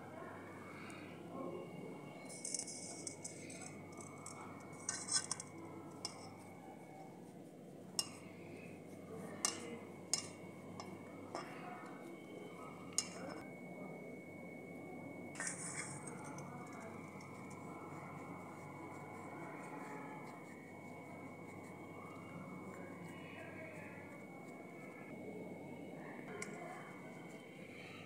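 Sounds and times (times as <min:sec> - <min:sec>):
metal spoon clinking on iron pan: 0:09.4 - 0:11.5, 0:12.9 - 0:13.4.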